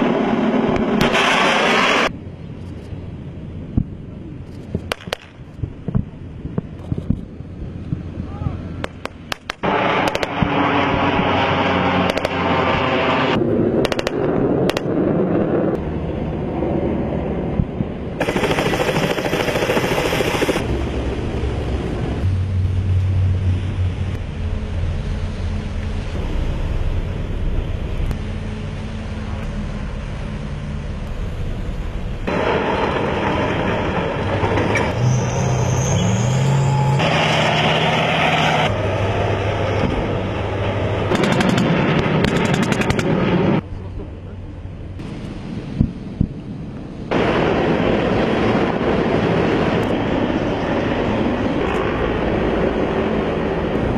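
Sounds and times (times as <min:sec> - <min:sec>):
boat and vehicle engines running: 0:00.0 - 0:53.9
low engine hum: 0:00.0 - 0:53.9
gunfire: 0:12.0 - 0:12.4, 0:13.8 - 0:14.9, 0:18.2 - 0:20.6, 0:41.1 - 0:43.3.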